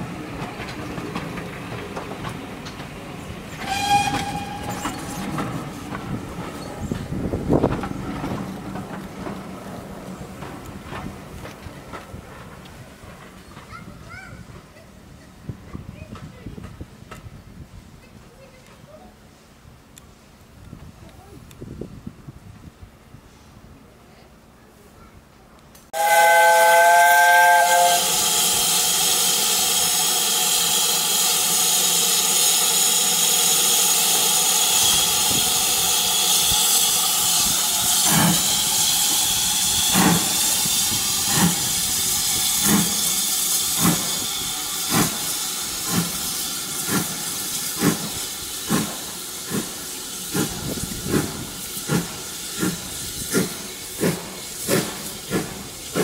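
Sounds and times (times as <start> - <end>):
steam locomotive whistle: 3.6 - 5.3, 26.0 - 46.6
locomotive exhaust chuffs: 26.0 - 56.0
steam hissing: 26.0 - 56.0.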